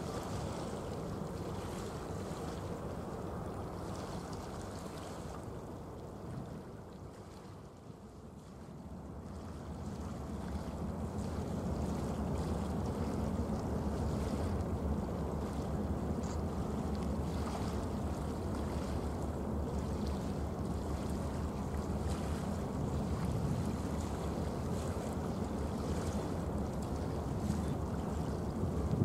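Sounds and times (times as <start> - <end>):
waterside ambience: 0.0 - 29.0
wind buffeting microphone: 27.3 - 29.0.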